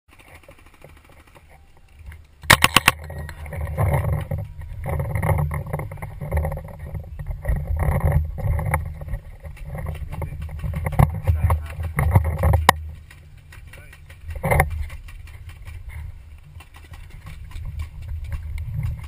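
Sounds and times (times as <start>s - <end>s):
gear clatter: 0.1s - 19.0s
running footsteps: 0.2s - 19.0s
paintball marker firing: 2.4s - 3.1s
wind rumble on microphone: 3.0s - 13.0s, 14.2s - 19.0s.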